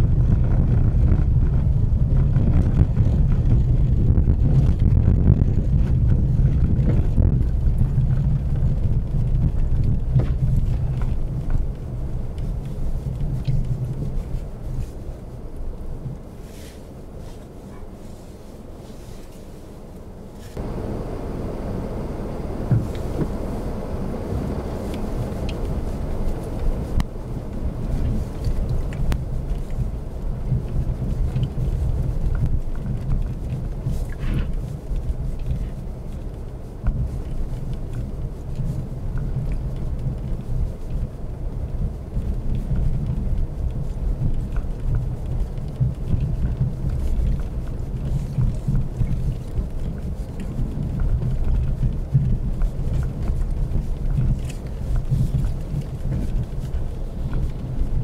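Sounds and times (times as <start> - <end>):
car rumbling over packed snow: 0.0 - 58.0
faint ticks and creaks: 24.8 - 58.0.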